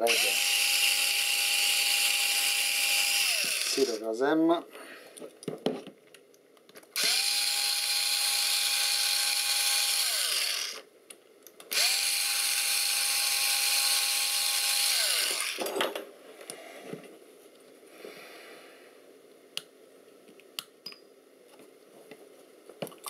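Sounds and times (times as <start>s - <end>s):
electric screwdriver whining: 0.0s - 4.0s, 7.0s - 10.8s, 11.7s - 15.6s.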